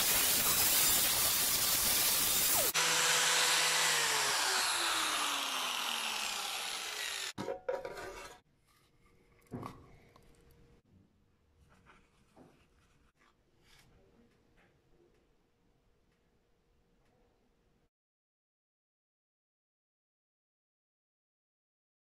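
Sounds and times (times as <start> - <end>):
angle grinder sanding: 0.0 - 7.4
grinder winding down: 0.0 - 7.4.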